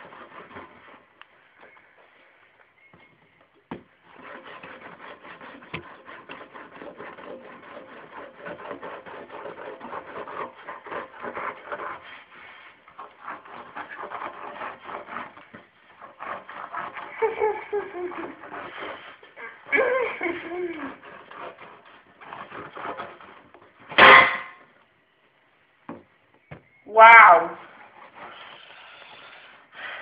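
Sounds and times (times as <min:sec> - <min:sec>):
fabric rubbing on microphone: 0:10.1 - 0:23.5.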